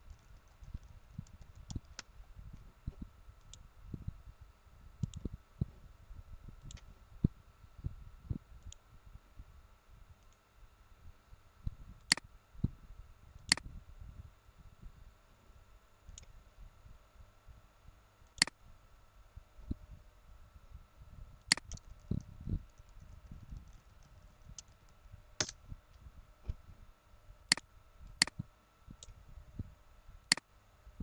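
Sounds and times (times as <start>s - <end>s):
computer mouse clicks: 5.0s - 5.2s, 13.4s - 13.7s, 18.4s - 18.6s, 21.4s - 25.6s, 30.3s - 30.5s.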